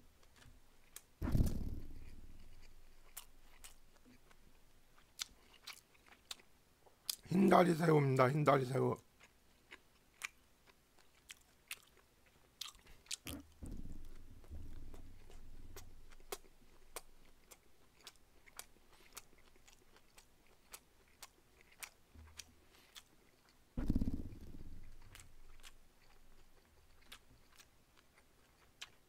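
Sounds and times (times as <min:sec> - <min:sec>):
muffled chewing rumble: 0:00.2 - 0:06.5, 0:11.0 - 0:29.0
mouth clicks and smacks: 0:12.6 - 0:29.0.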